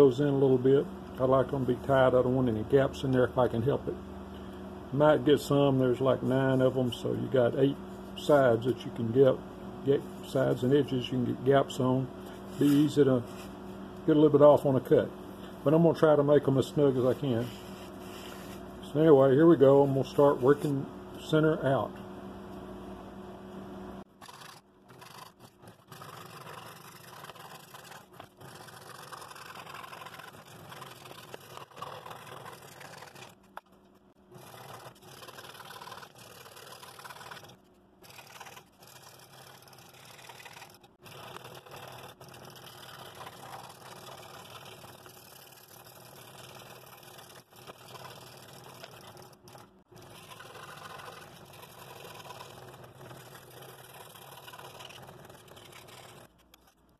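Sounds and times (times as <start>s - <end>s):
scroll saw cutting wood: 24.1s - 33.6s, 34.3s - 56.8s.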